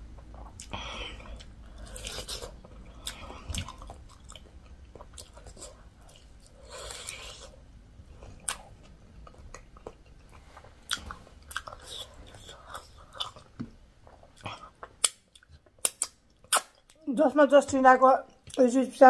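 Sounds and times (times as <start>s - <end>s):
person biting and chewing: 14.2s - 16.8s
wet mouth clicks: 14.4s - 16.9s.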